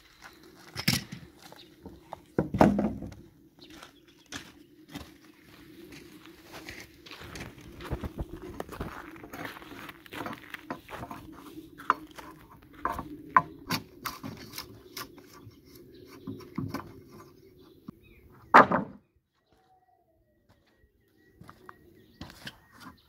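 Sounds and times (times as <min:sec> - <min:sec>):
loud wooden thump: 0:02.4 - 0:03.1, 0:18.5 - 0:19.0
wooden boards knocking and clattering: 0:02.4 - 0:03.2, 0:18.5 - 0:19.0.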